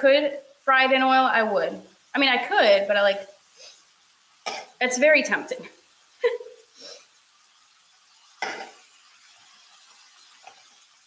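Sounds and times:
faint sizzle: 0.0s - 11.0s
metal spoon scraping a skillet: 8.1s - 10.8s.

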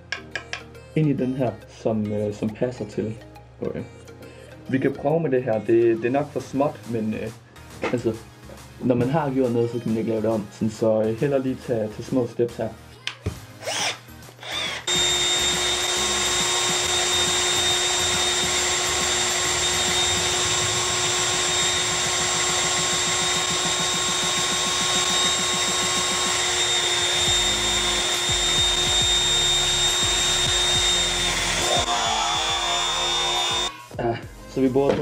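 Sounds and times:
cordless drill whining: 13.6s - 33.7s.

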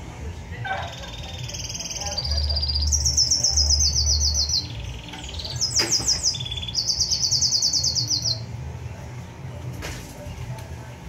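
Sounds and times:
songbird singing trills: 0.8s - 8.6s.

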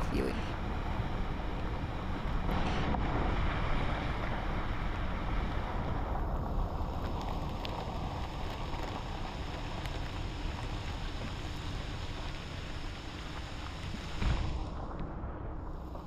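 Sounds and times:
car driving on wet dirt road: 3.2s - 14.8s.

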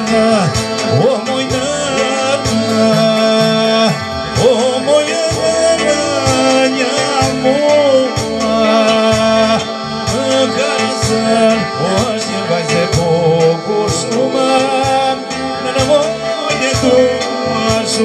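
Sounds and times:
electronic keyboard bass and chords: 0.0s - 18.0s
man singing folk melody: 0.0s - 18.0s.

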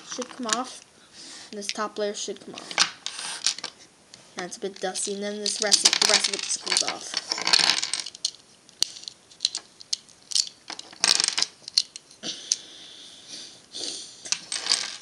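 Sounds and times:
plastic puzzle pieces clicking: 0.0s - 0.8s, 4.8s - 12.6s, 14.3s - 15.0s.

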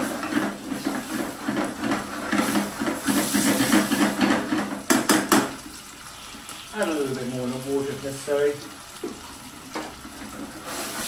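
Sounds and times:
spatula scraping frying pan: 0.0s - 5.3s, 9.2s - 11.0s
sauce sizzling: 0.0s - 11.0s
sharp knocks: 4.3s - 5.5s.

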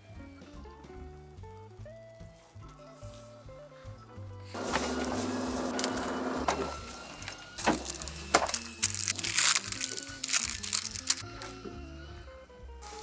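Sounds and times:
background music: 0.0s - 13.0s
plastic packet crackling: 4.5s - 11.6s.

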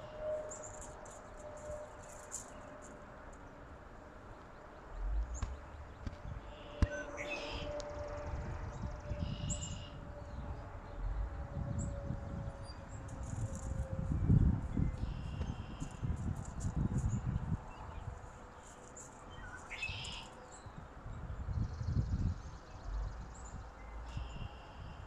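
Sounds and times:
wind rumbling on microphone: 4.8s - 25.0s
faint high bird chirps: 19.4s - 20.4s.

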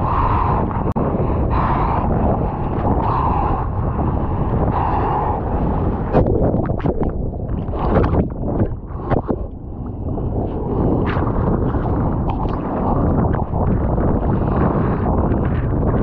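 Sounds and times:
water splashing on camera: 6.1s - 16.0s.

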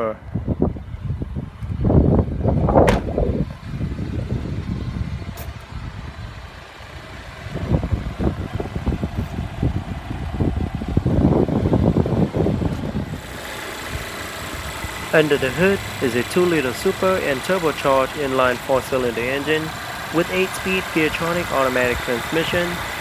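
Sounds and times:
car engine idling: 0.4s - 23.0s
car door shutting: 2.8s - 3.4s.

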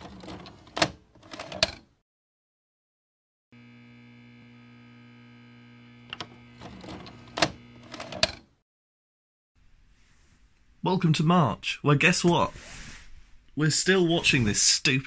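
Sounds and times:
electrical buzzing hum: 3.6s - 7.9s.

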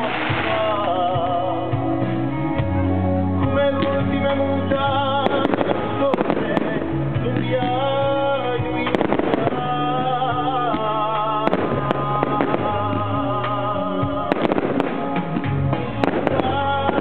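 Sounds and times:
firework shells bursting: 0.0s - 1.0s.

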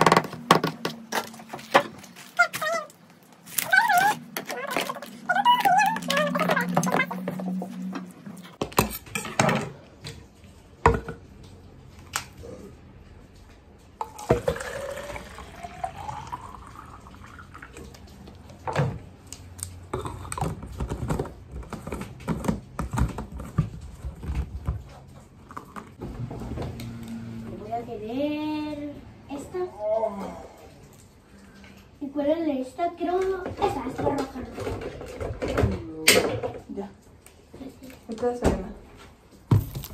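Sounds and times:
plastic containers clicking and knocking: 0.0s - 2.6s, 20.0s - 24.9s
water pouring into a bottle: 14.0s - 18.1s.

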